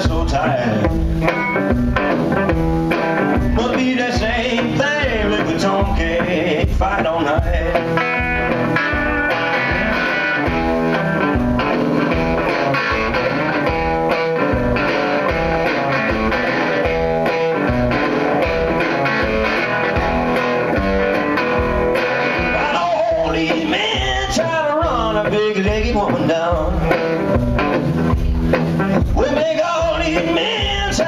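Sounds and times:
electric guitar playing blues: 0:00.0 - 0:31.0
person singing: 0:03.4 - 0:08.2, 0:22.4 - 0:27.3, 0:29.0 - 0:31.0.

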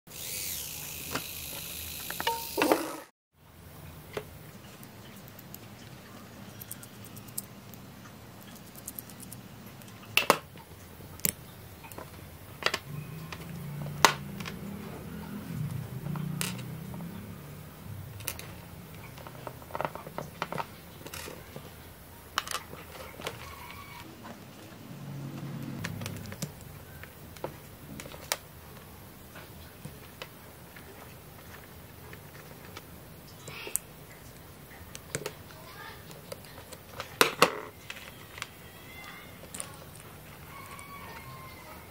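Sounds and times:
small servo motor whirring: 0:00.1 - 0:03.1.

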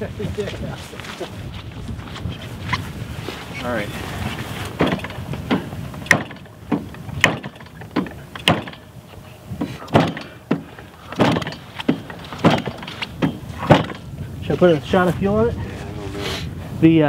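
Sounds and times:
engine knocks as propeller flipped: 0:04.8 - 0:08.9, 0:09.6 - 0:14.1.

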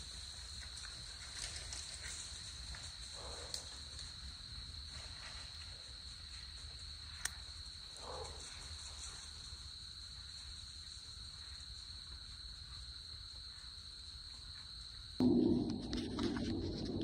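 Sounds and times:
night insects chorus: 0:00.0 - 0:17.0
faint low sound: 0:15.2 - 0:17.0.

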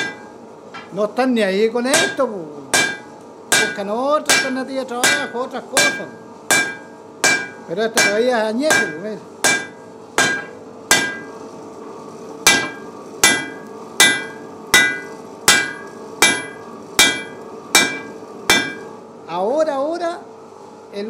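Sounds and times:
hammer striking iron on anvil: 0:00.0 - 0:00.9, 0:01.9 - 0:11.4, 0:12.5 - 0:18.9.

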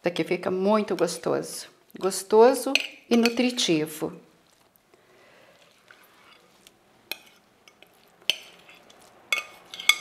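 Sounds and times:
spoon scraping filling from bowl: 0:05.6 - 0:10.0
utensil clinking on dish: 0:07.1 - 0:10.0.

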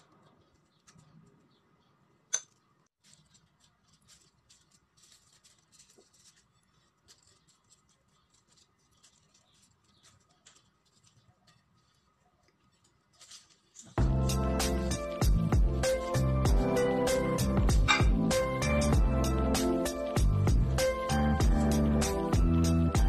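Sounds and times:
utensil scraping on tortilla: 0:02.9 - 0:16.3
lettuce leaves rustling: 0:02.9 - 0:17.6.

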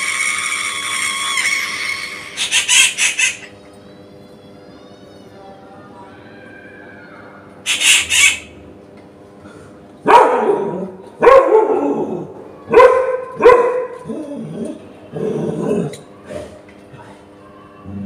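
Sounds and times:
bird crying harshly: 0:01.2 - 0:03.5, 0:06.8 - 0:08.6.

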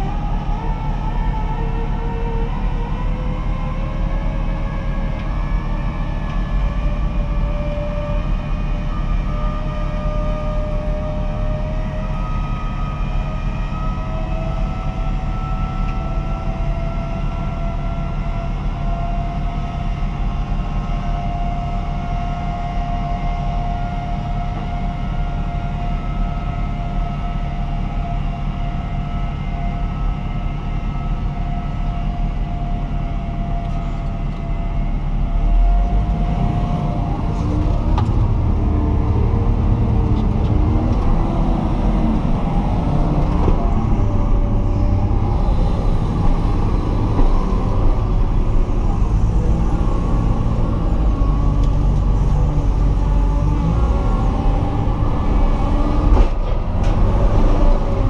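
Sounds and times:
wheel loader engine under load: 0:00.0 - 0:58.0
rising whine: 0:23.2 - 0:58.0.

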